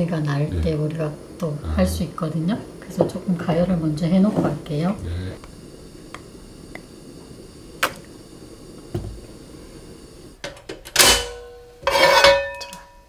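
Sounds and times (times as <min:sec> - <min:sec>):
gas burner hum: 0:00.0 - 0:13.0
frying pan scraping on grate: 0:02.9 - 0:04.9, 0:10.4 - 0:12.7.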